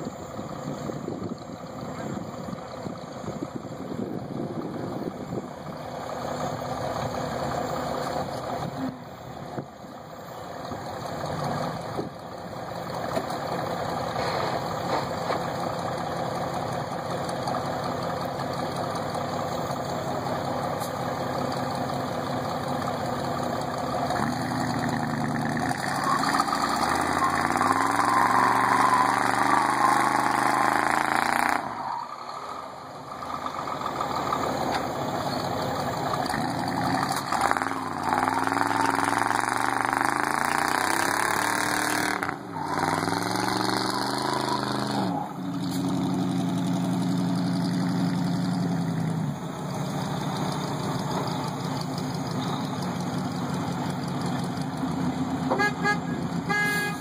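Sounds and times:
truck engines running: 0.0 - 57.0
engine revving under load: 24.1 - 32.2, 36.1 - 52.9.

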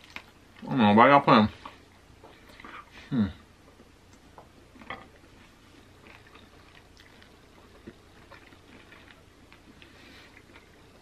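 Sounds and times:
person chewing and eating: 0.0 - 0.7, 3.6 - 11.0.

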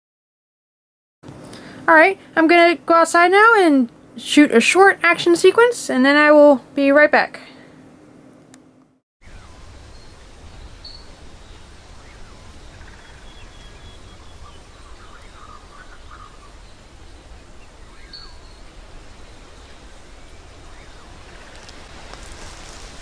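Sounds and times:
bird chirps: 9.2 - 21.8
faint birdsong: 9.2 - 22.9.

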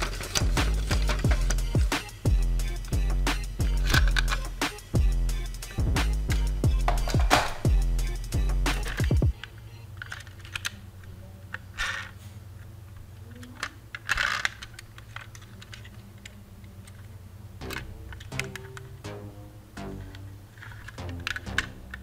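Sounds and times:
scraping rustles: 0.0 - 1.7
toy vehicles clattering: 0.0 - 1.7, 3.8 - 4.5, 8.7 - 18.9, 20.5 - 22.0
low steady hum: 0.0 - 22.0.

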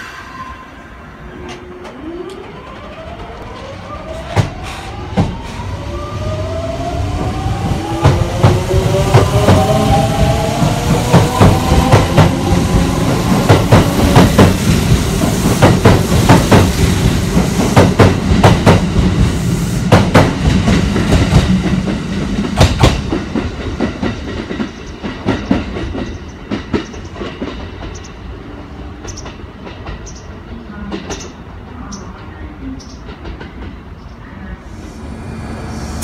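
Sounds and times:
train wheels clattering: 19.9 - 28.1.

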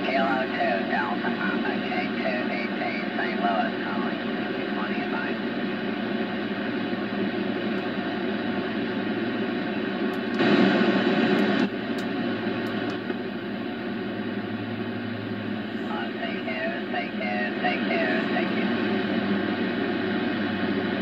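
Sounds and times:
garbled radio voice: 0.0 - 5.4, 15.7 - 19.0
shortwave radio static hiss: 0.0 - 21.0.

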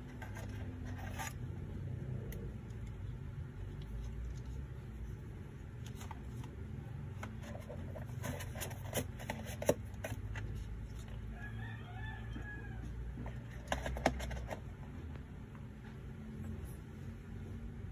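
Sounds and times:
steady low hum: 0.0 - 17.9
rooster crowing: 11.2 - 13.3.

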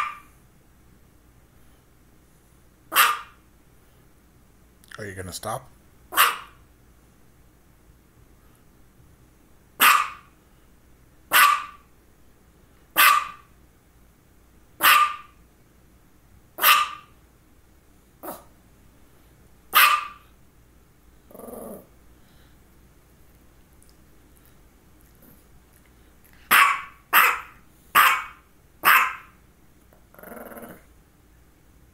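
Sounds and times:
dog barking: 0.0 - 0.3, 2.9 - 3.4, 6.1 - 6.6, 9.8 - 10.3, 11.3 - 11.9, 13.0 - 13.5, 14.8 - 15.4, 16.6 - 17.1, 19.7 - 20.3, 26.5 - 29.4.

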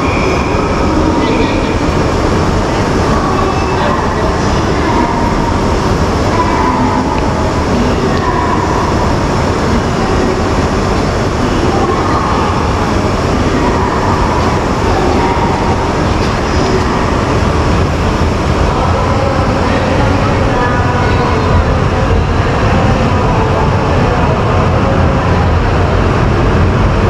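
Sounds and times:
faint train whine: 0.0 - 27.0.

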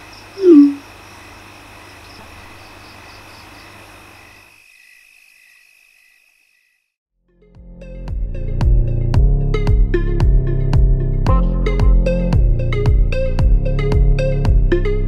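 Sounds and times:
crickets chirping: 0.0 - 6.9
phone notification bloop: 0.4 - 0.8.

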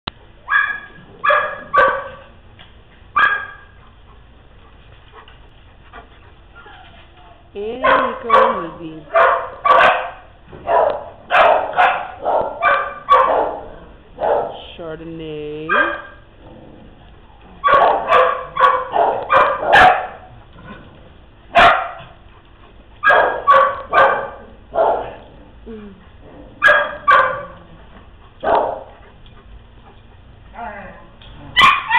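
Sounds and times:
dog barking: 0.5 - 2.3, 3.2 - 3.8, 7.8 - 14.6, 15.7 - 16.2, 17.6 - 20.3, 21.5 - 22.1, 23.0 - 25.2, 26.6 - 27.6, 28.4 - 28.9, 31.6 - 31.9.

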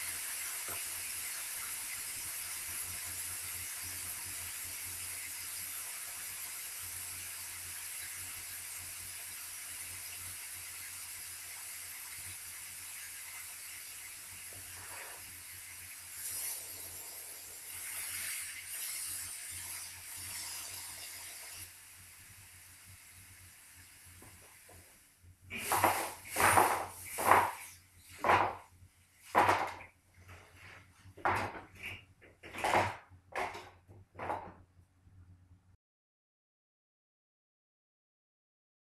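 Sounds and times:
refrigerant hissing from a line: 0.0 - 28.7.

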